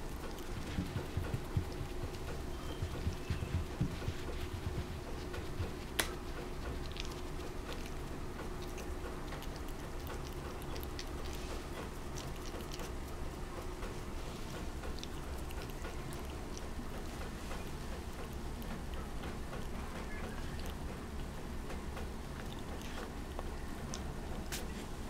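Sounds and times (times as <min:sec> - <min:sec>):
puppy nibbling fingers clicks: 0:00.0 - 0:24.8.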